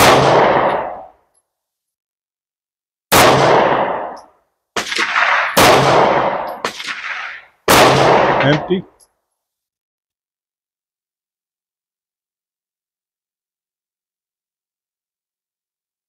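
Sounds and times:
pistol shots with echo: 0.0 - 1.1, 3.1 - 4.2, 4.8 - 8.8.

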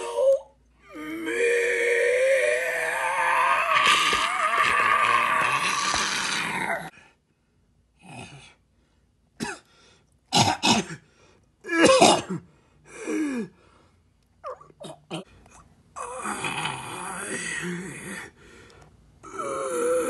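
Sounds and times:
person groaning: 0.9 - 6.9, 16.0 - 18.3, 19.2 - 20.0
person coughing: 9.4 - 9.7, 10.3 - 11.0, 11.7 - 12.4.

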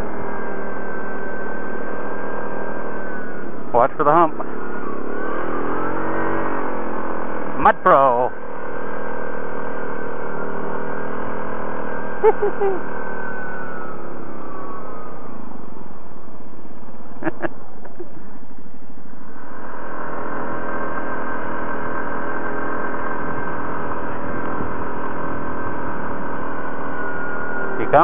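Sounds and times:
atv engine running: 0.0 - 28.0
sharp clicks: 3.4 - 3.8, 11.7 - 12.3, 13.4 - 14.0, 22.9 - 23.4, 26.7 - 27.0.

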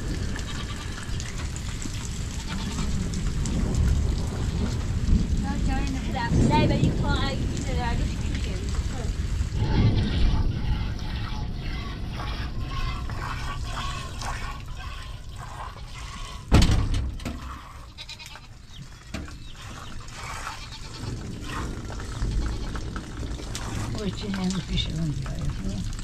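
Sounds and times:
milk squirting into metal bowl: 12.7 - 16.5
loud thump: 16.5 - 17.4.

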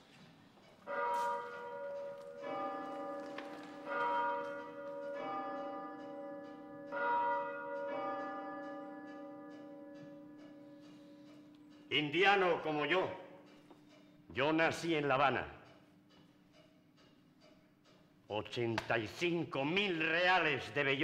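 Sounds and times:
church bells ringing: 0.8 - 13.6.

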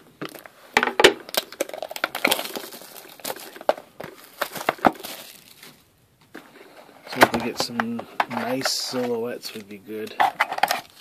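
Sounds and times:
cellophane tearing and crackling: 1.3 - 5.8.

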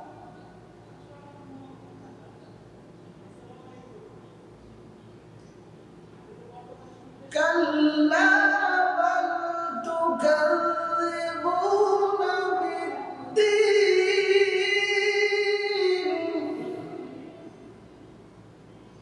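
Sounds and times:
man chanting melodically: 7.3 - 17.8.

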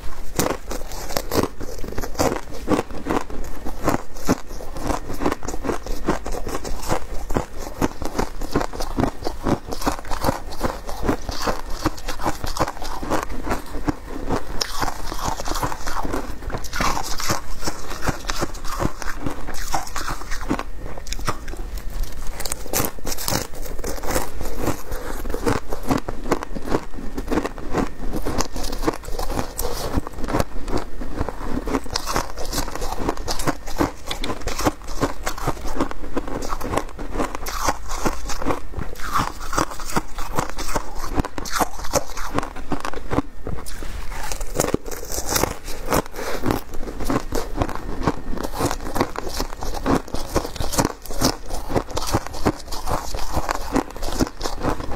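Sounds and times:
shaved ice crunching: 0.2 - 14.0, 14.6 - 26.0, 37.4 - 42.5, 43.6 - 54.9.

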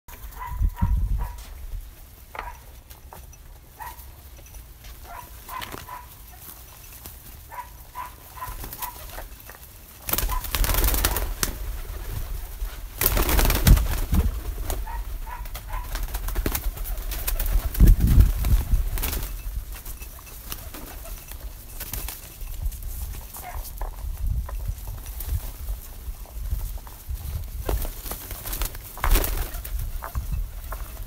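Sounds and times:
pigeons cooing: 7.5 - 9.3, 10.0 - 19.3.

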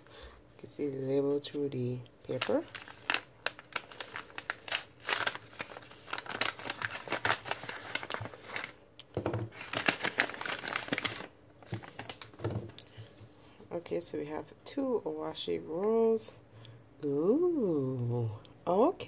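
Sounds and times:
paper packet crinkling: 2.2 - 8.8, 9.4 - 12.5.

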